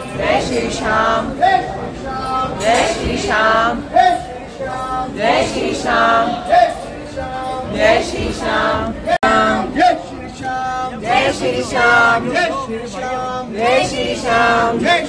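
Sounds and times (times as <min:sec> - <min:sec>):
men and women singing together: 0:00.0 - 0:15.0.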